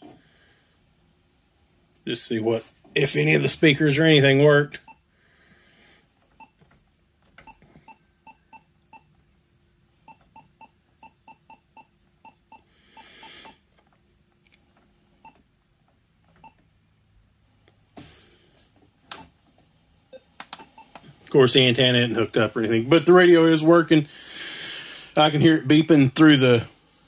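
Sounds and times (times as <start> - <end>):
key-press beeps: 6.4 - 6.6, 7.4 - 9.1, 10.0 - 13.6, 16.4 - 16.6, 20.1 - 21.0.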